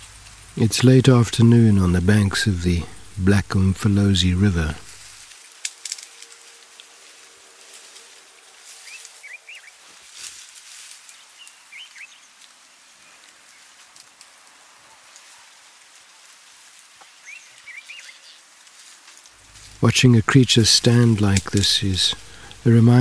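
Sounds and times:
faint steady hiss: 0.0 - 23.0
soft rustles: 4.6 - 23.0
small bird twittering: 11.4 - 12.3, 17.2 - 18.4.

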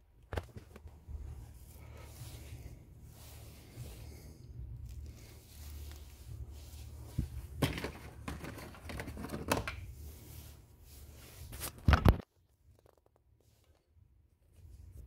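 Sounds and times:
low steady hum: 0.0 - 12.7
hands handling small objects: 4.8 - 10.5.

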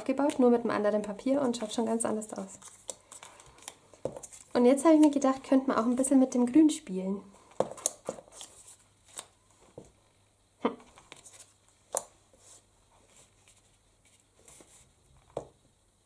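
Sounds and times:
light paper rustling: 1.3 - 6.1, 7.4 - 9.9, 10.9 - 15.0.

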